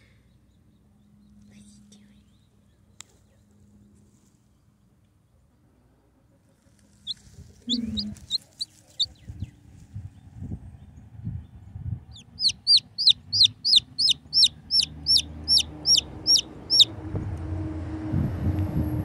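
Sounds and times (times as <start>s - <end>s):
chick peeping: 6.5s - 9.5s, 12.1s - 16.9s
low rumble: 7.1s - 8.4s, 9.0s - 19.0s.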